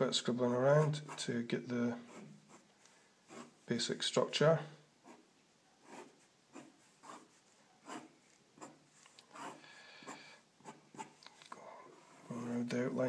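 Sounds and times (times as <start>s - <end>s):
pencil scratching on paper: 0.7s - 1.4s, 2.0s - 3.7s, 5.0s - 11.2s.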